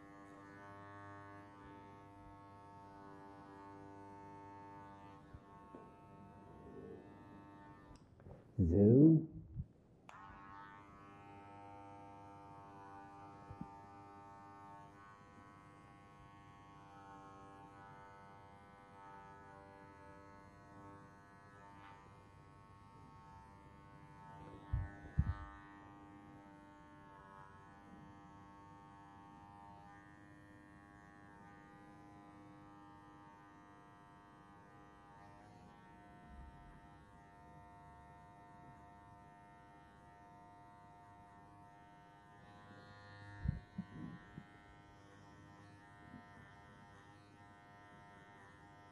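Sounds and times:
electric hair clippers buzzing: 0:00.0 - 0:08.0, 0:10.1 - 0:48.9.

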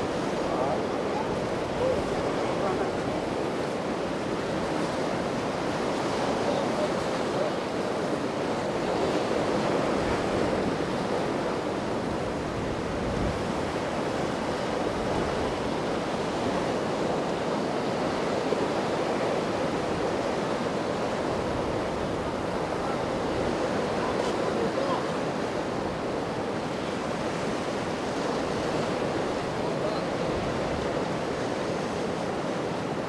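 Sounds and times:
choppy water rushing and breaking: 0:00.0 - 0:33.0
wind on microphone: 0:08.8 - 0:16.8.

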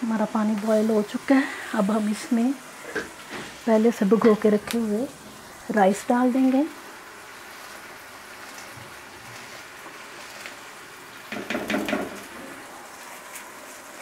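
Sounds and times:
water boiling: 0:00.0 - 0:14.0
colander knocks: 0:11.3 - 0:12.5.

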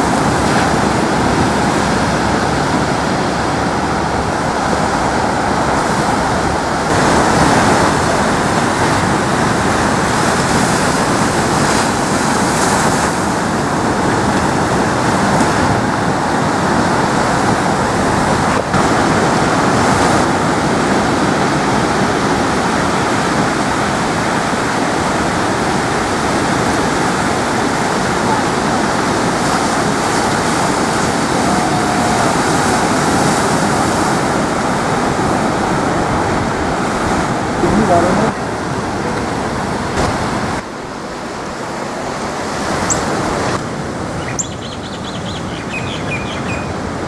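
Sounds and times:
ocean surf breaking: 0:00.0 - 0:47.0.

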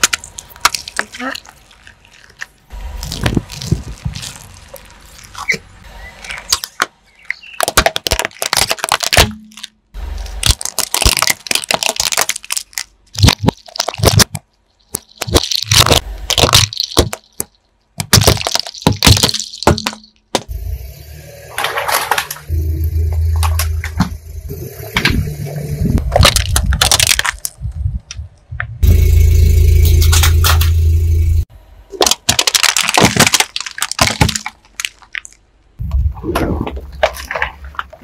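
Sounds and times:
plastic toys cracking under tyre: 0:00.0 - 0:20.5, 0:26.0 - 0:28.2, 0:31.9 - 0:35.8.

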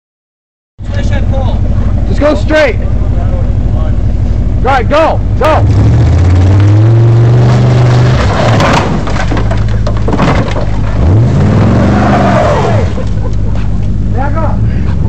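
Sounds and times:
truck engine revving: 0:00.8 - 0:15.0
sheet metal crunching and scraping: 0:06.6 - 0:13.2.

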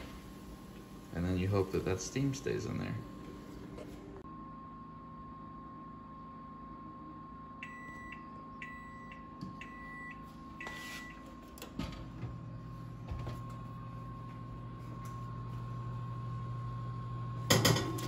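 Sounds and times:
oven timer beeping: 0:07.5 - 0:11.7.

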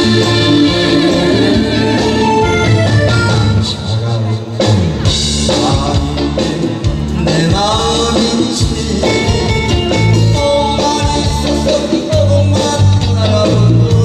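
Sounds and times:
man singing into a microphone: 0:00.0 - 0:02.6, 0:05.4 - 0:14.0
pop backing music with bass and beat: 0:00.0 - 0:14.0.

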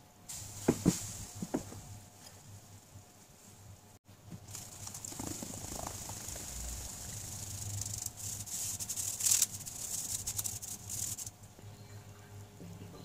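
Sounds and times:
flour rubbed through mesh sieve: 0:00.3 - 0:03.7, 0:04.4 - 0:11.4.

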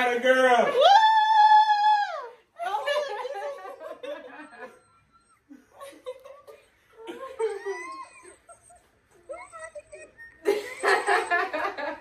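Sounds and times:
people laughing: 0:02.6 - 0:04.8, 0:05.5 - 0:12.0.

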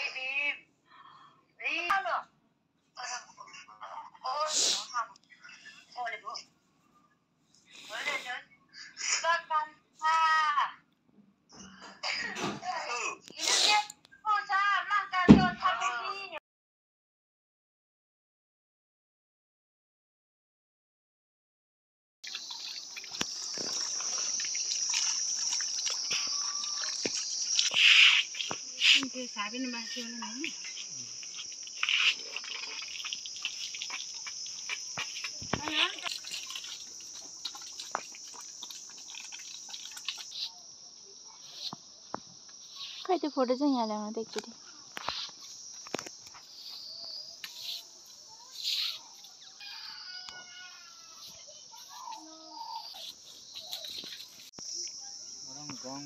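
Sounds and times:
water splashing on stone: 0:22.2 - 0:28.6
insects chirring: 0:22.2 - 0:56.0
straw broom sweeping: 0:22.4 - 0:40.5.

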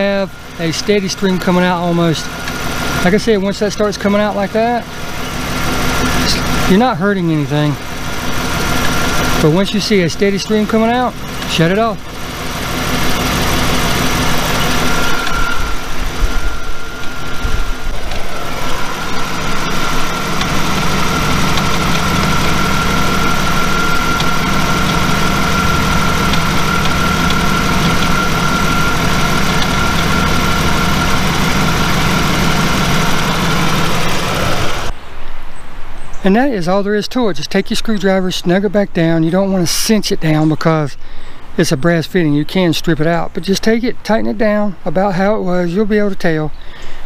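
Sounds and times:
car engine idling: 0:00.0 - 0:35.0
high-pitched whine: 0:00.0 - 0:35.1.

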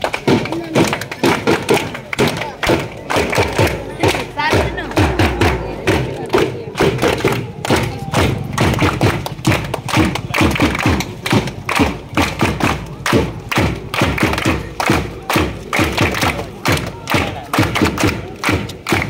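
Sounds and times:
people clapping along: 0:00.0 - 0:19.0
hand drum beating: 0:03.2 - 0:07.2.

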